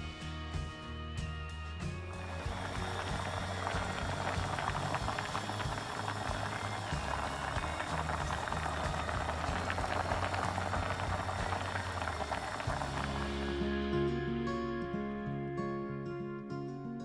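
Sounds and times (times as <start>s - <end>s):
water boiling in a pot: 2.2s - 13.7s.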